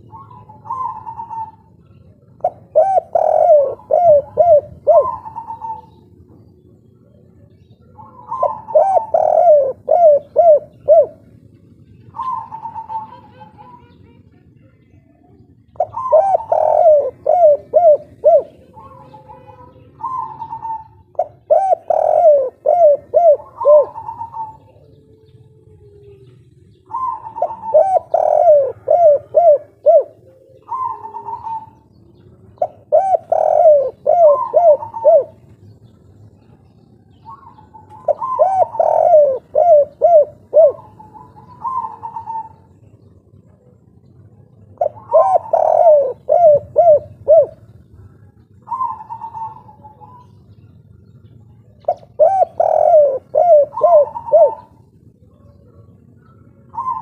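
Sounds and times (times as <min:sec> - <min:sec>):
dove cooing: 0:00.0 - 0:57.0.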